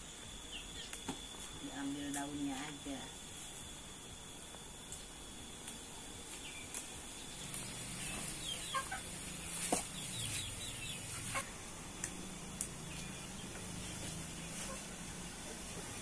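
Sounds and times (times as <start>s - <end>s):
leaf stems snapping: 4.9s - 7.8s, 12.0s - 13.1s
chicken clucking: 8.0s - 11.5s, 14.5s - 14.9s.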